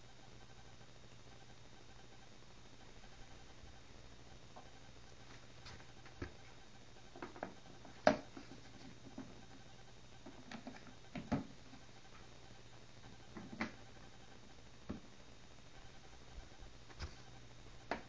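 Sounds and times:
low steady hum: 0:00.0 - 0:18.0
plastic tubs knocking and clicking: 0:07.1 - 0:09.4, 0:10.2 - 0:11.5.

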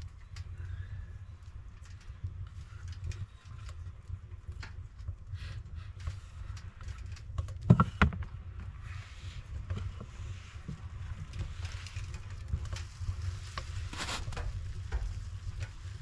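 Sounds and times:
bread crust crackling: 0:11.3 - 0:16.0.

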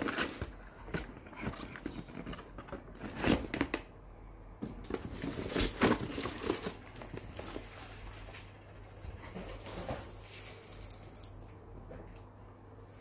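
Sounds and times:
cardboard rustling and crinkling: 0:00.0 - 0:03.8, 0:04.7 - 0:10.8.

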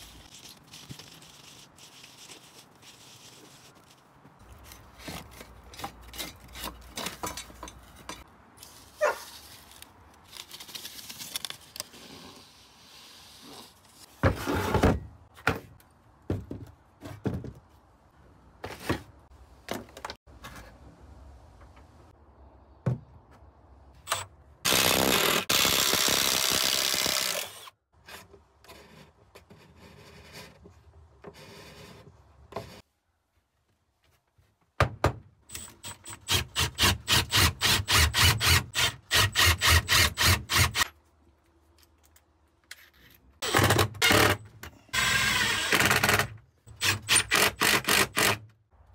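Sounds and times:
power drill boring through wood: 0:24.7 - 0:27.7, 0:45.0 - 0:48.4.

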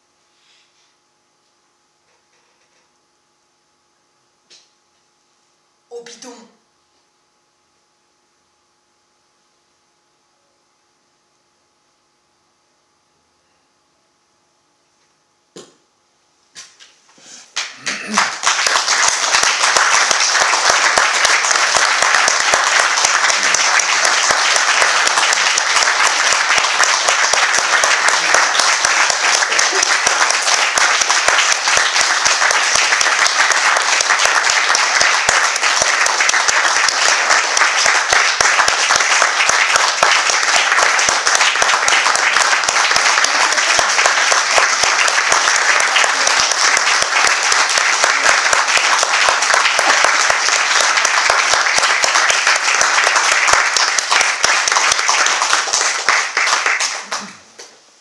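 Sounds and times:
audience applauding: 0:17.5 - 0:57.7.

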